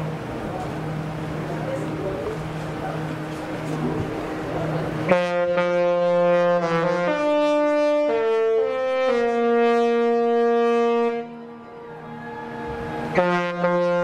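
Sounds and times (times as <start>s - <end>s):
ship horn playing a tune: 5.0s - 14.0s.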